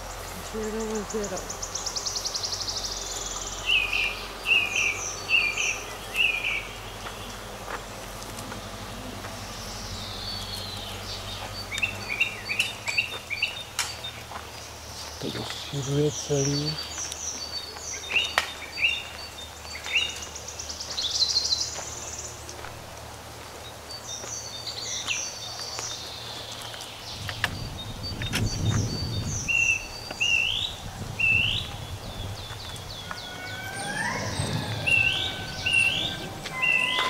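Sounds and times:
songbirds chirping: 0.0 - 37.0
low rumble: 27.1 - 37.0
bird trill: 27.5 - 37.0.

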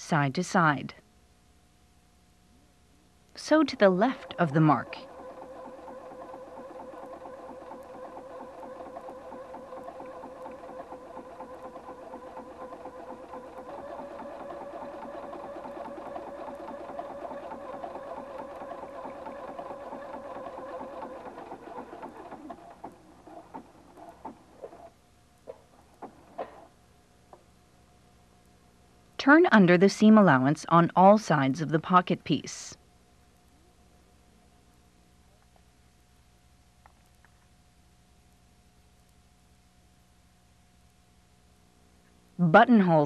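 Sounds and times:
sewing machine stitching: 3.4 - 24.9.

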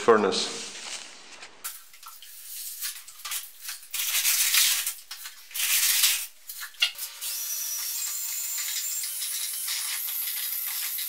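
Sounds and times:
drill with paddle mixer whirring: 7.0 - 11.0.

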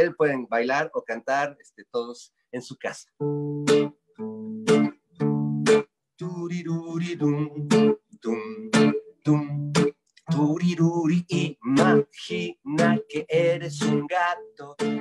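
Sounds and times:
acoustic guitar strumming: 3.2 - 5.9, 6.6 - 15.0.

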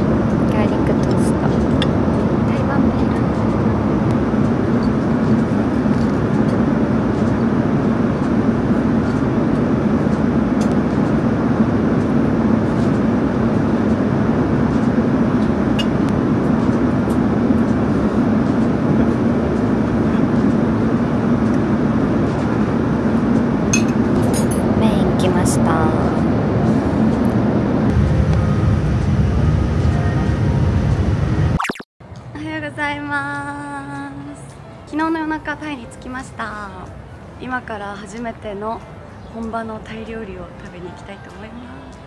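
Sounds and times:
airliner cabin rushing noise: 0.0 - 31.6.

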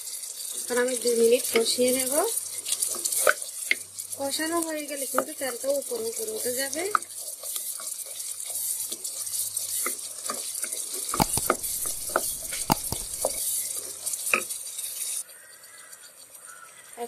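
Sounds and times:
spatula scraping pot: 11.2 - 13.4.

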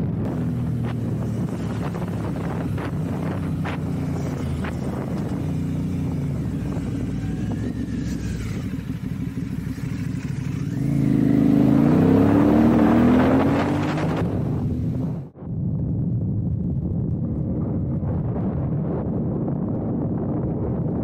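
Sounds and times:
motorcycle engine accelerating: 0.0 - 15.3.

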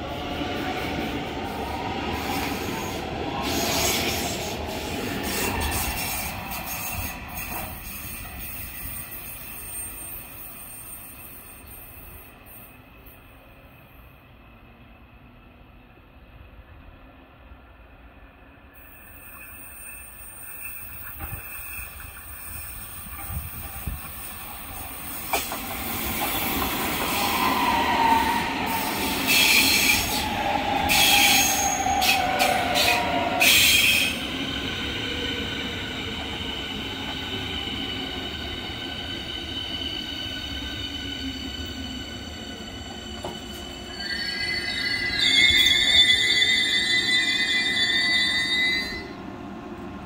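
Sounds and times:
electric train whine: 0.0 - 50.0
loud high brake squeals: 5.4 - 12.8, 18.8 - 23.4, 27.2 - 30.3, 30.9 - 34.2, 43.5 - 49.1
train rolling rumble: 18.7 - 47.0.

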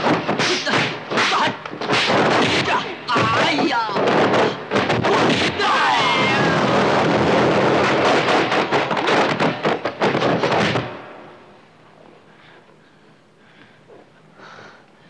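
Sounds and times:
sharp cracks and bangs: 0.0 - 11.2.

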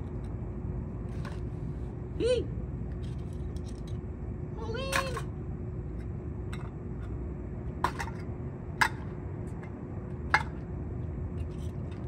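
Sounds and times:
low city rumble: 0.0 - 12.0.

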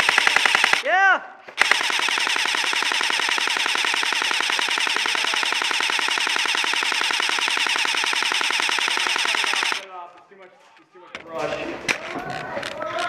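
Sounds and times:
rifle firing full-auto burst: 0.0 - 0.9, 1.6 - 9.9.

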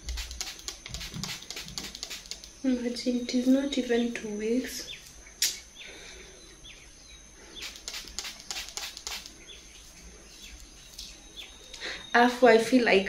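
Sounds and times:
spray bottle spritzing: 0.0 - 2.6, 7.6 - 9.4
small birds chirping faintly: 0.1 - 13.0
sharp click: 5.4 - 5.6, 7.6 - 9.4.

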